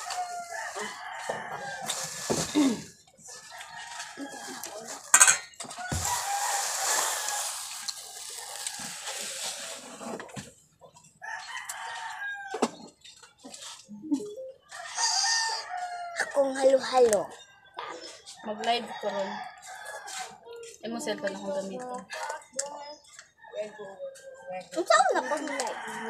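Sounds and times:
rooster crowing: 0.0s - 2.2s, 3.4s - 4.9s, 5.7s - 9.1s, 11.2s - 12.6s, 14.7s - 16.5s, 25.2s - 26.0s.

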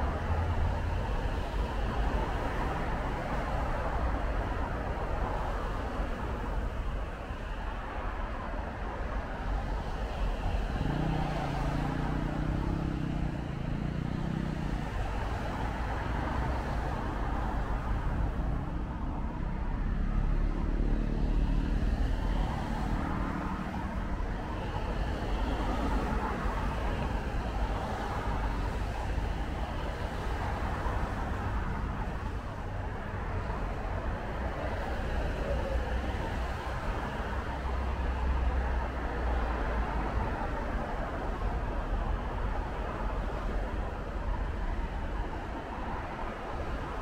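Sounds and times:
low traffic rumble: 0.0s - 47.0s
vehicles passing on wet road: 9.8s - 47.0s.

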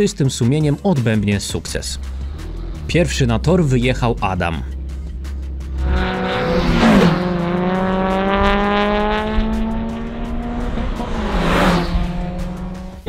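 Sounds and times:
race car engine accelerating: 2.0s - 3.4s, 5.0s - 13.0s.

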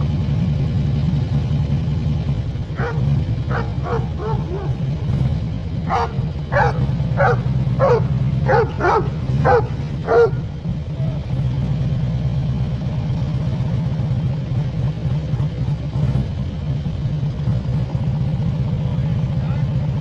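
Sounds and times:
motorcycle engine rumbling: 0.0s - 20.0s
dog barking: 2.8s - 4.9s, 5.9s - 10.4s.

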